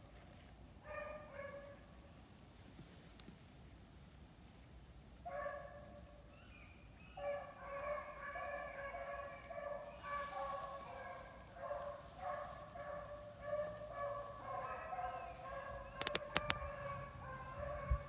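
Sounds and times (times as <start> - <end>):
dogs baying: 7.2 - 18.0.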